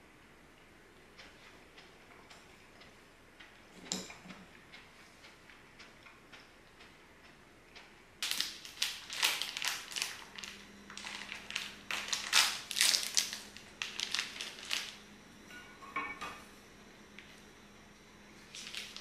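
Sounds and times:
plastic packet crinkling: 8.2s - 15.0s, 18.4s - 19.0s.

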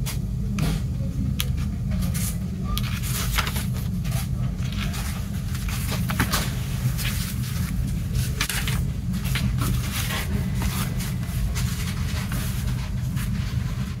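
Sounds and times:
paper rustling: 2.1s - 14.0s.

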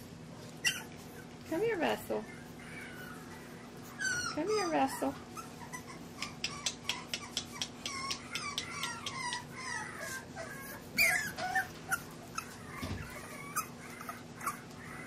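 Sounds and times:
puppies whining and squealing: 0.1s - 15.0s.

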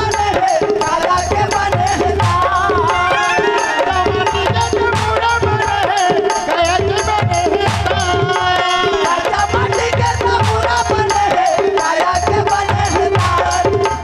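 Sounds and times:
hand drum with bass thumps: 0.0s - 14.0s
held melody bending in pitch: 1.4s - 5.7s.

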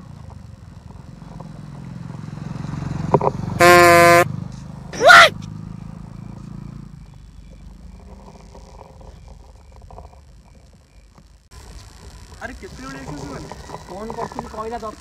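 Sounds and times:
motorcycle engine passing: 0.0s - 10.8s
loud horn blast: 3.6s - 4.3s
short loud yell: 5.0s - 5.4s.

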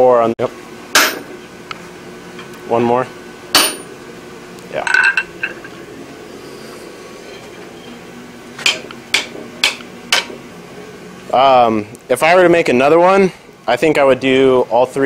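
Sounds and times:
hammer striking hot steel on anvil: 0.9s - 1.3s, 3.5s - 3.9s, 8.6s - 10.4s
steel clinking on anvil: 3.6s - 3.9s.

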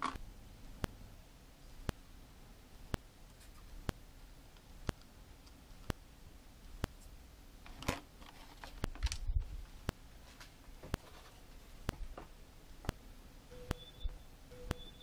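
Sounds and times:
plastic and cardboard rustling: 7.7s - 12.3s.

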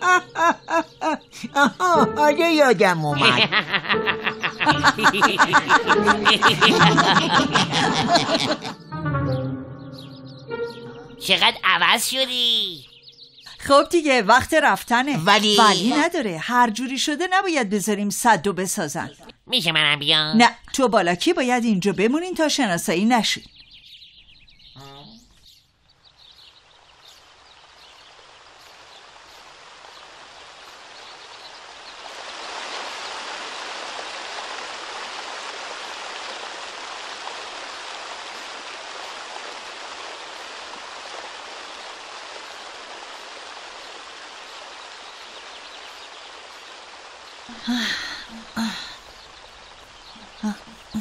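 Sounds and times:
river rushing: 28.1s - 50.2s.

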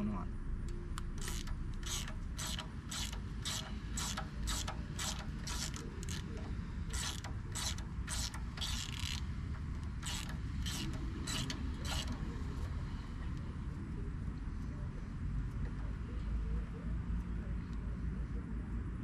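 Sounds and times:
hand ratchet clicking: 1.2s - 12.3s.

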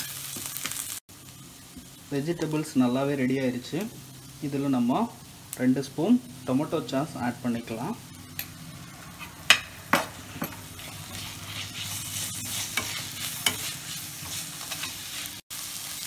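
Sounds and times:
frying sizzle: 0.0s - 16.0s
spoon scraping pan: 9.1s - 15.4s
metal spoon clanking on pan: 9.2s - 10.6s.

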